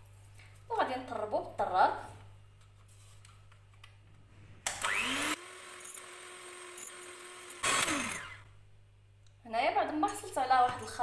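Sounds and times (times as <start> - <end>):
electric hand mixer whine: 4.8 - 8.5.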